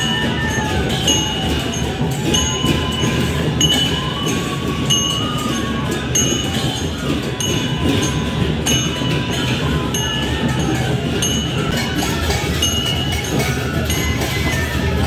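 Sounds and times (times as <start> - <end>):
small metal cymbals clashing: 0.0 - 15.0
steady drumming: 0.0 - 15.0.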